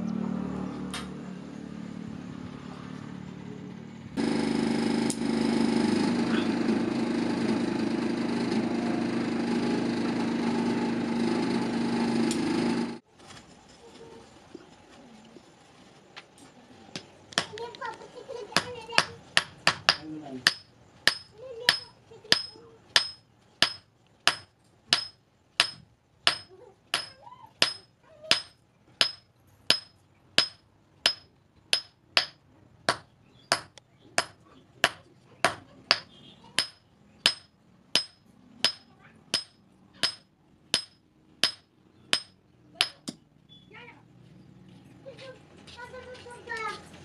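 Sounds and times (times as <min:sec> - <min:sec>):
hammer forging steel on anvil: 0:18.6 - 0:43.2.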